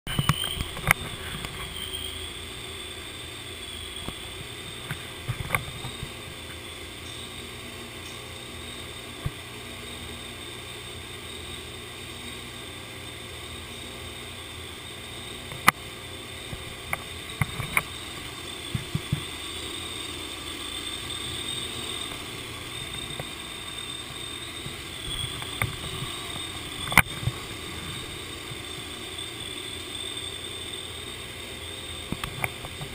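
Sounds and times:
sharp clicks and knocks: 0:00.1 - 0:01.7, 0:04.0 - 0:06.6, 0:15.5 - 0:15.8, 0:16.5 - 0:19.4, 0:24.6 - 0:27.4, 0:32.0 - 0:32.9
steady mechanical hum: 0:00.1 - 0:32.9.

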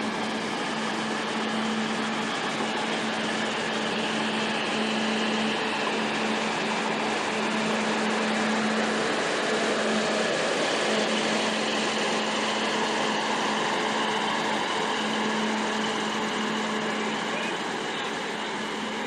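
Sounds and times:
diesel railcar engines humming: 0:00.0 - 0:19.0.

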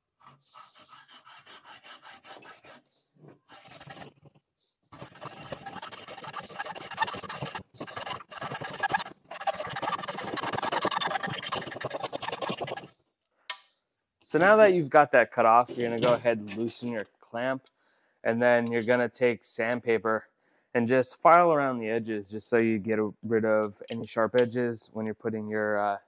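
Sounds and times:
hacksaw cutting tube: 0:00.3 - 0:02.8, 0:03.5 - 0:04.2, 0:05.0 - 0:12.9.

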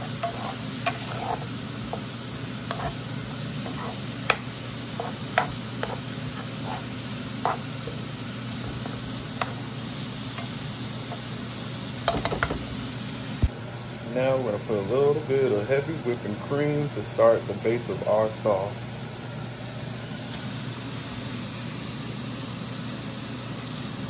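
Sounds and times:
spatula scraping a pan: 0:00.0 - 0:11.4
vegetables sizzling in a pan: 0:00.0 - 0:13.6, 0:19.5 - 0:24.0.

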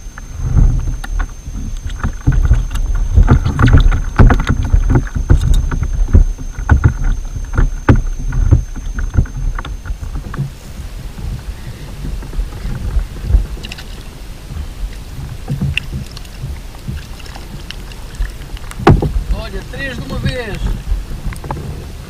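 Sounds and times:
faint high whine: 0:00.0 - 0:22.0
wind rumble on microphone: 0:00.0 - 0:22.0
knocks on plastic kayak hull: 0:18.8 - 0:19.3.

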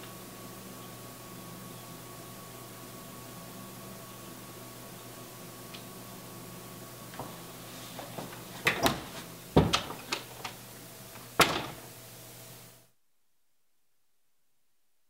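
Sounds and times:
door knocks and thuds: 0:08.6 - 0:10.3, 0:11.4 - 0:11.8
door closing bang: 0:11.4 - 0:11.8.

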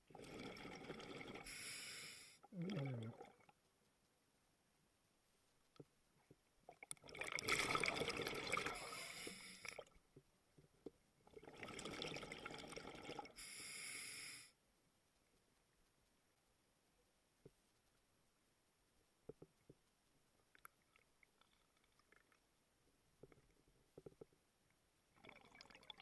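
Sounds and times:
exhaust bubbles underwater: 0:00.0 - 0:01.6, 0:02.5 - 0:03.5, 0:07.0 - 0:09.0, 0:11.3 - 0:13.4
diver breathing through regulator: 0:08.7 - 0:09.8.

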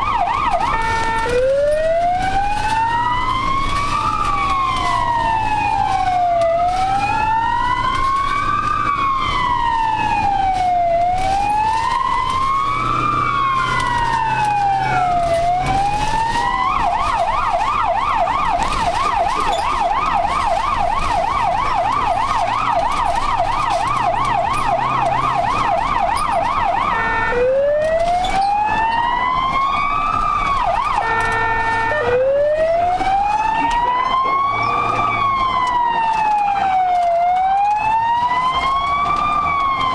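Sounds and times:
siren wailing: 0:00.0 - 0:39.9
siren yelping: 0:00.0 - 0:39.9
engine drone: 0:00.1 - 0:20.7.

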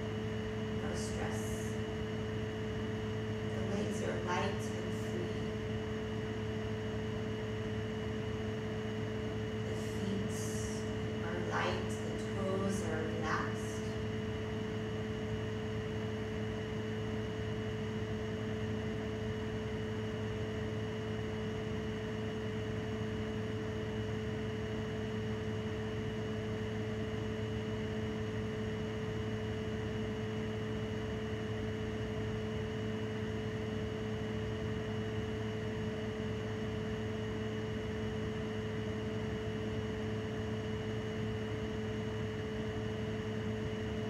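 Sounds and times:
room hum: 0:00.0 - 0:44.0.

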